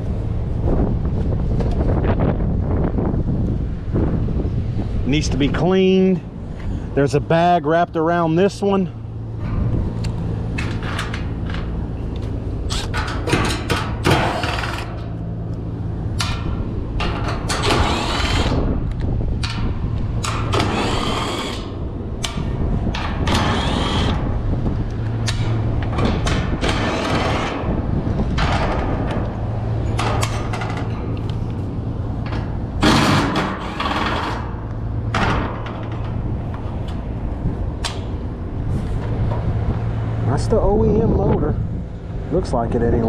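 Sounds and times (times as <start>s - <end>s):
steady low hum: 0.0s - 43.0s
cordless drill whining: 23.3s - 24.2s.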